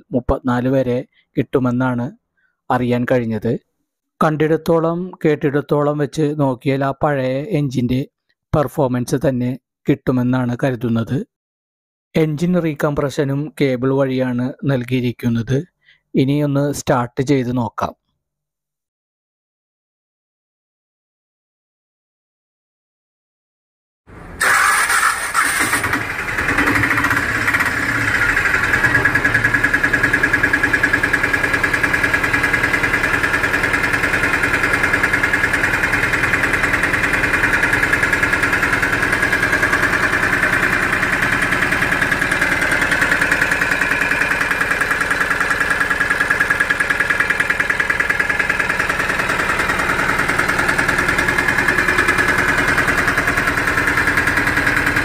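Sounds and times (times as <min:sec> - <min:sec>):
diesel engine idling: 0:24.1 - 0:55.0.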